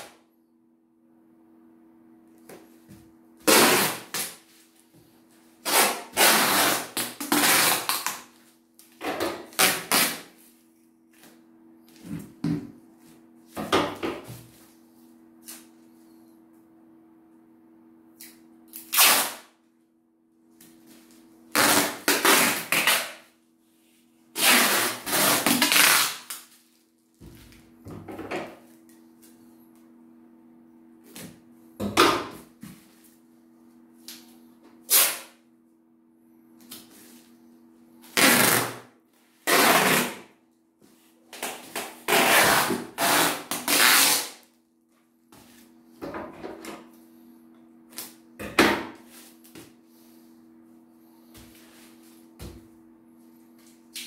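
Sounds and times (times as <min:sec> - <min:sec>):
faint steady hum: 0:00.0 - 0:54.0
packing tape ripping off roll: 0:03.4 - 0:04.4, 0:05.6 - 0:08.3, 0:09.3 - 0:10.4, 0:18.7 - 0:19.5, 0:21.5 - 0:23.2, 0:24.4 - 0:26.8, 0:34.9 - 0:35.4, 0:38.1 - 0:38.8, 0:39.4 - 0:40.3, 0:41.3 - 0:44.5.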